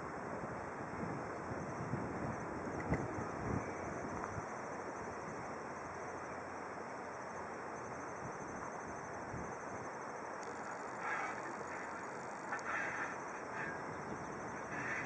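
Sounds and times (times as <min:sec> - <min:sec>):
steady wind: 0:00.0 - 0:15.0
bird call: 0:11.0 - 0:15.0.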